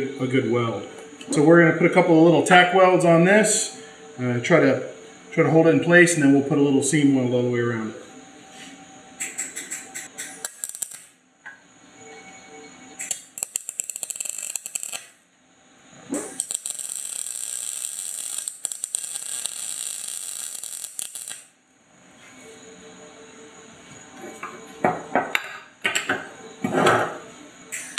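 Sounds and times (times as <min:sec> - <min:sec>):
welder arc crackling: 0:09.2 - 0:11.2, 0:13.0 - 0:15.2, 0:16.1 - 0:21.6.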